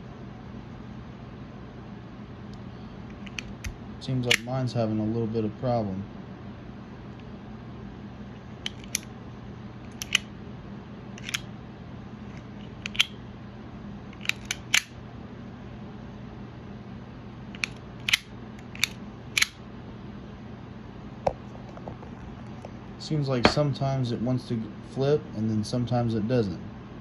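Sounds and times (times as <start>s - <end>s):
utility knife mechanism clicking: 9.9s - 10.3s, 11.2s - 11.4s, 14.2s - 14.9s, 17.6s - 19.6s.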